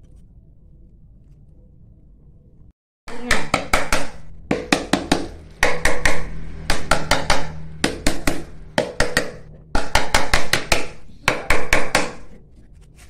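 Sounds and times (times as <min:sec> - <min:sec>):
steel rod knocking on cast: 0:03.1 - 0:12.4.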